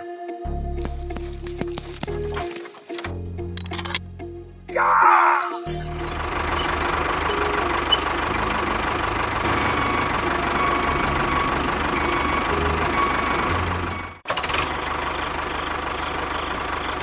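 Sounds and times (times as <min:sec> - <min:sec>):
tractor engine running: 0:00.8 - 0:04.0, 0:05.4 - 0:17.0.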